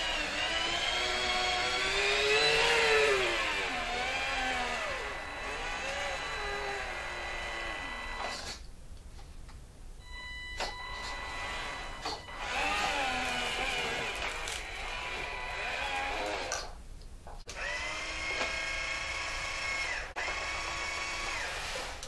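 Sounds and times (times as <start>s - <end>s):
toy truck electric motor whining: 11.0s - 16.7s.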